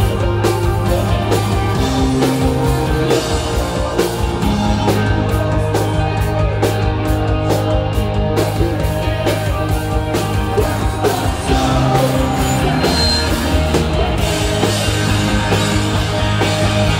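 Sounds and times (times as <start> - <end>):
drum and cymbal hits: 0.0 - 16.9
rock band playing live: 0.0 - 16.9.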